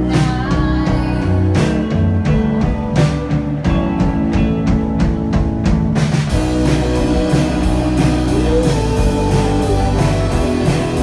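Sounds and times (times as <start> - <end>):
rock band playing live: 0.0 - 11.0.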